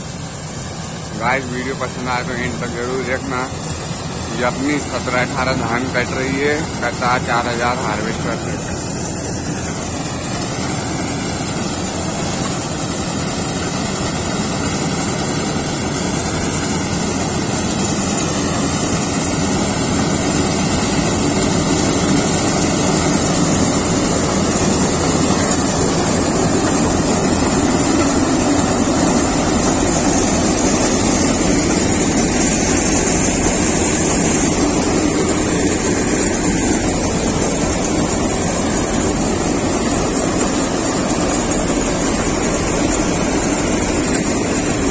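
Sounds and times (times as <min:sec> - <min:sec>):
combine harvester running: 0:00.0 - 0:44.9.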